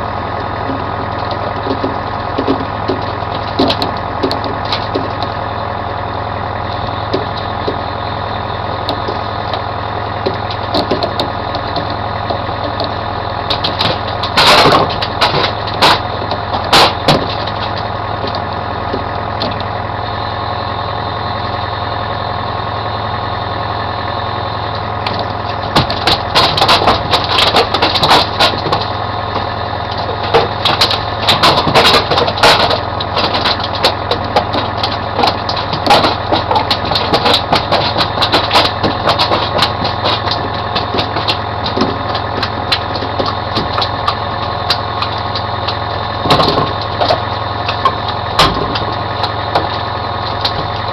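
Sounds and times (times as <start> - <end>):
boat engine running: 0.0 - 50.9.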